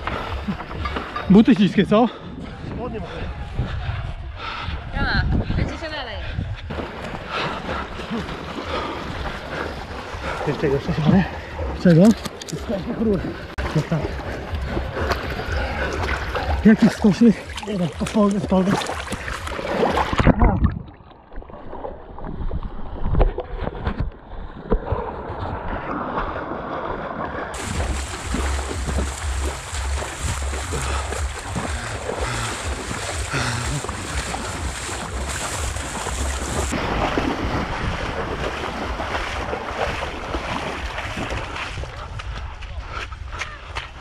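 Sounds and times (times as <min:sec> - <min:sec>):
person wading through water: 0:00.0 - 0:01.3, 0:05.9 - 0:44.0
wind on microphone: 0:02.2 - 0:06.9, 0:27.5 - 0:44.0
water splashing: 0:06.7 - 0:44.0
muffled underwater sound: 0:27.6 - 0:35.3.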